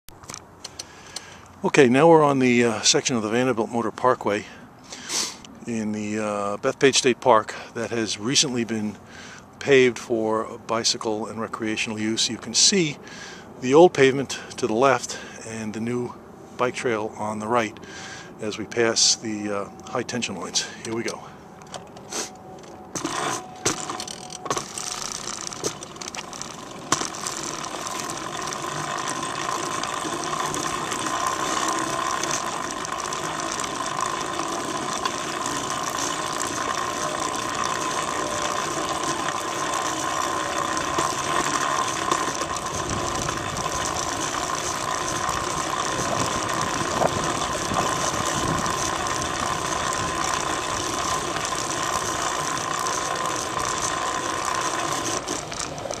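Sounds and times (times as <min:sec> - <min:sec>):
bicycle chain whirring: 0:22.2 - 0:56.0.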